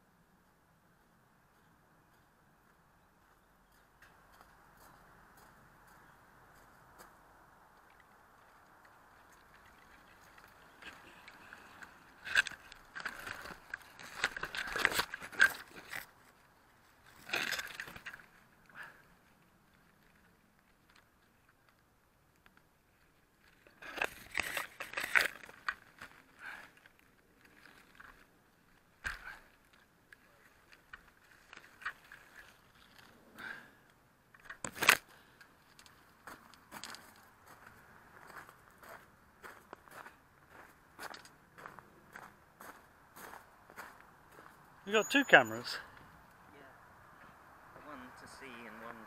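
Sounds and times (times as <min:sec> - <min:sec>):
leaves and twigs scraping camera: 0:08.9 - 0:18.5, 0:23.5 - 0:33.2, 0:34.3 - 0:36.2.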